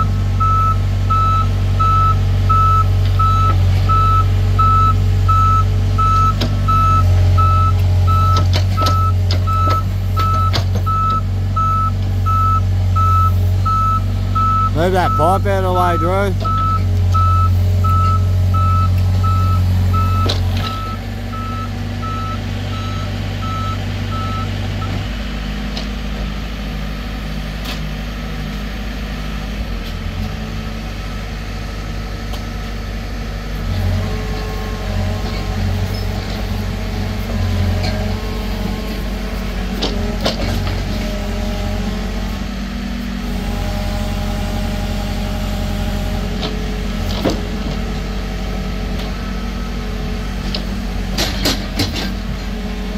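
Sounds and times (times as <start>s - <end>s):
heavy machinery diesel engines: 0.0s - 52.9s
reversing beeper beeps: 0.4s - 24.5s.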